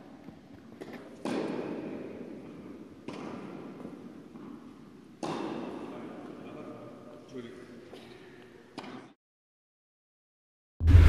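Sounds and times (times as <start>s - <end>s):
echoing thuds in a hall: 0.0s - 6.9s.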